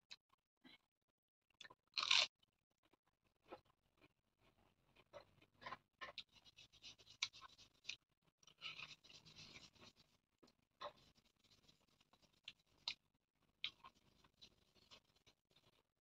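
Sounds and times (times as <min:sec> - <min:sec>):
chewing: 0:13.6 - 0:15.8.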